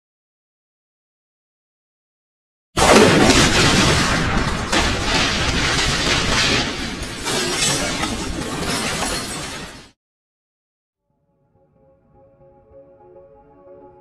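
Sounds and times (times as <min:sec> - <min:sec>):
loud crash sound effect: 0:02.8 - 0:10.0.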